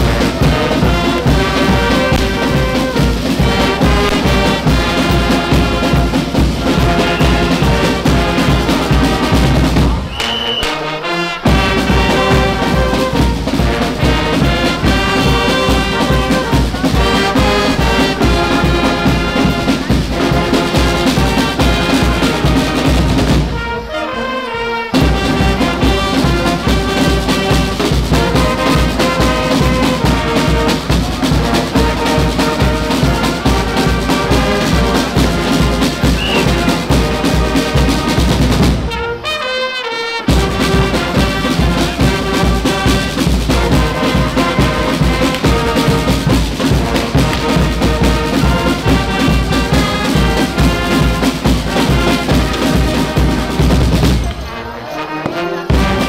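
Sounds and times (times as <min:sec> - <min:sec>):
marching bass and snare drums: 0:00.0 - 0:23.9, 0:24.9 - 0:39.2, 0:40.2 - 0:54.5, 0:55.3 - 0:56.0
trumpets and trombones: 0:00.0 - 0:56.0.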